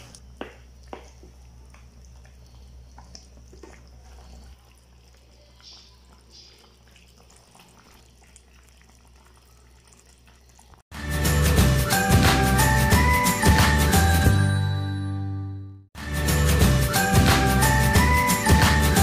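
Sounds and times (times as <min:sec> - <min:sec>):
sauce simmering in a pan: 0:00.2 - 0:10.9
music: 0:10.9 - 0:19.0.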